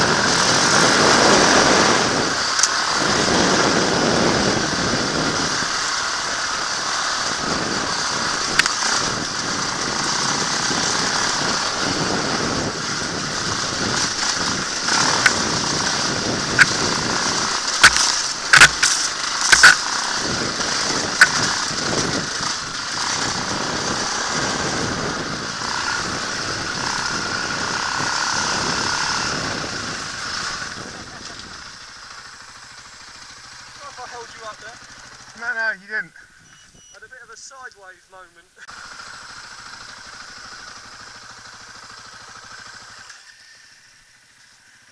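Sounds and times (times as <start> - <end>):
dirt bike engine running: 0.0 - 44.9
sharp knocks and clacks: 17.7 - 19.8.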